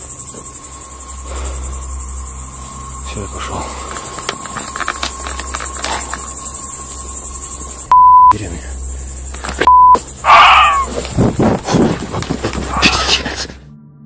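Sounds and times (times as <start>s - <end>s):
crickets chirping: 0.0s - 13.7s
censor bleep tone: 7.9s - 8.4s, 9.6s - 10.0s
high cry falling in pitch: 10.2s - 11.0s.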